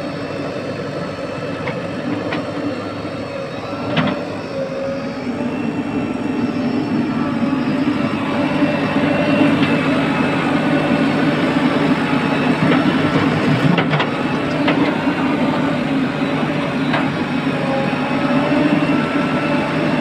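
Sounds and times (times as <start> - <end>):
diesel engines running: 0.0 - 20.0.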